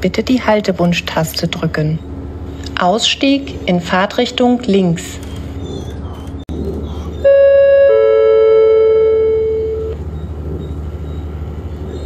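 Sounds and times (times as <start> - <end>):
train rumbling: 0.0 - 12.0
two-tone chime: 7.3 - 10.0.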